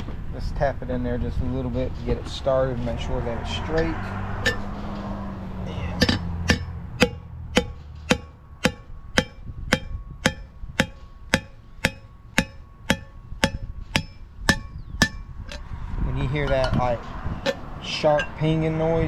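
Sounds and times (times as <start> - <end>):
sharp metallic ringing: 2.8 - 19.0
hammer striking metal tool: 3.8 - 4.8, 6.0 - 15.6, 16.4 - 18.5.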